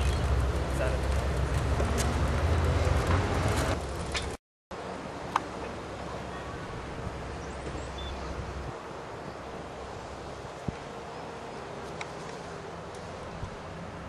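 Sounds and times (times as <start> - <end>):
bicycles clicking and rattling: 0.0 - 4.4
wind rumble on microphone: 6.3 - 9.4.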